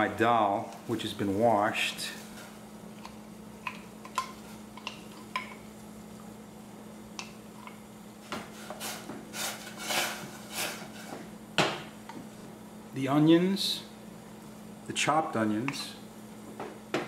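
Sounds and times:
steady low hum: 0.0 - 17.0
spoon stirring and scraping pot: 8.5 - 11.2.

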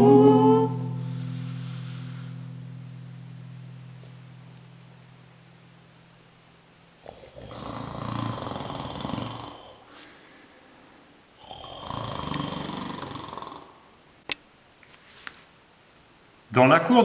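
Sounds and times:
person imitating snoring: 7.0 - 9.9, 11.4 - 13.9.

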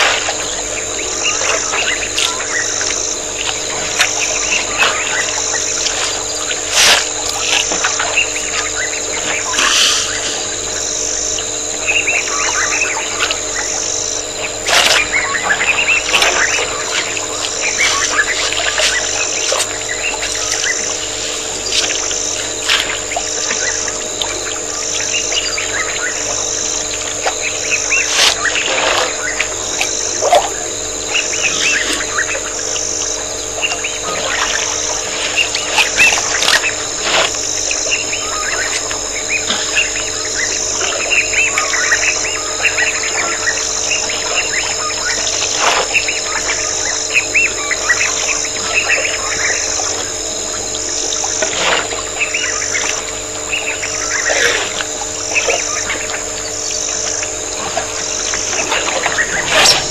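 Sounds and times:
high-pitched insect drone: 0.0 - 59.9
birds chirping: 0.1 - 37.0, 55.3 - 59.9.

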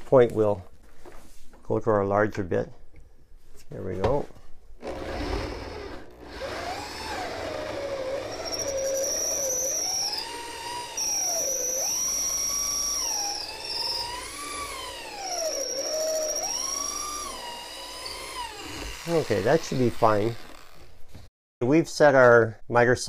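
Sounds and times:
power drill whining into wood: 4.8 - 21.0.

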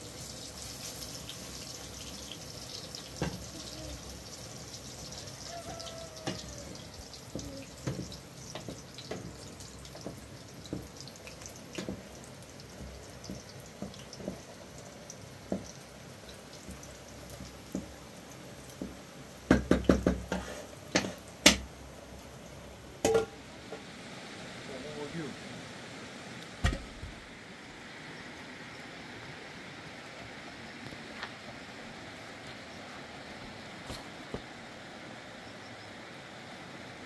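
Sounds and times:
steady hiss: 0.0 - 37.0
wooden spoon knocking metal pot: 23.0 - 23.4.

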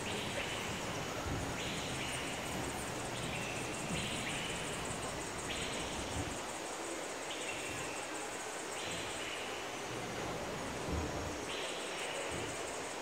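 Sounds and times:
insects high pulsing buzz: 0.0 - 13.0.

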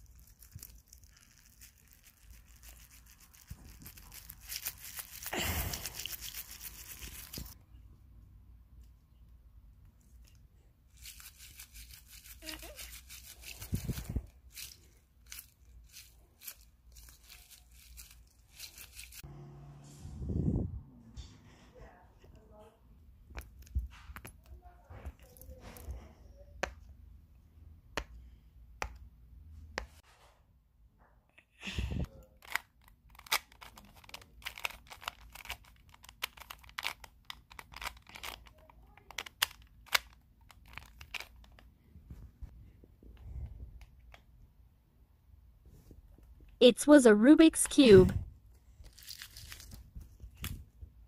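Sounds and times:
low steady hum: 19.2 - 23.7
puzzle cube plastic clicks: 32.4 - 41.7.

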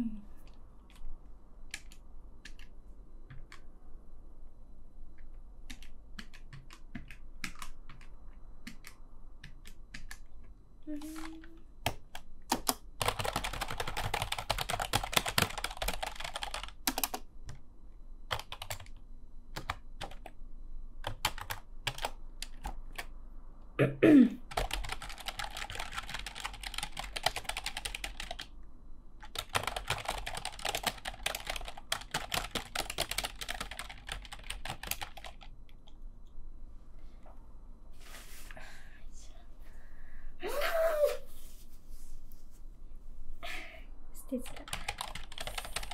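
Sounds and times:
fast typing on keyboard: 1.7 - 3.7, 5.2 - 17.6, 18.3 - 20.4, 21.0 - 23.1, 24.5 - 28.5, 29.2 - 35.8, 44.4 - 45.9.

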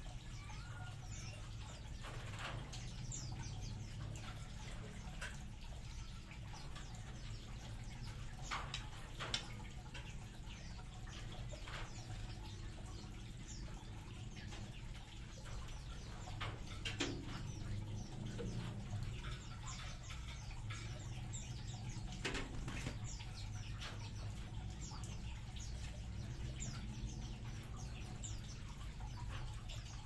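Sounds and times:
birds chirping: 0.0 - 30.0
wings fluttering: 4.0 - 26.9.

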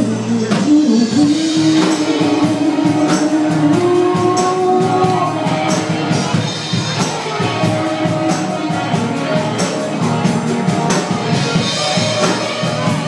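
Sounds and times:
woman singing long notes: 0.0 - 6.0
drum kit with cymbals: 0.0 - 13.0
electric guitars and bass: 0.0 - 13.0.

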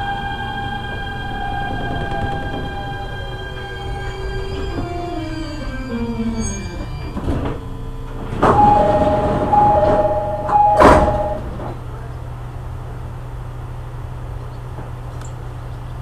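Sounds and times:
sliding train doors: 0.0 - 12.3
low train hum: 0.0 - 16.0
two-tone door chime: 1.3 - 11.6.

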